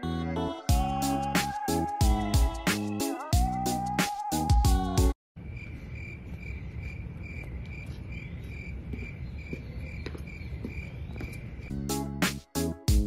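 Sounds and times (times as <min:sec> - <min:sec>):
music: 0:00.0 - 0:05.2, 0:11.7 - 0:13.0
insect chirping: 0:05.4 - 0:11.7.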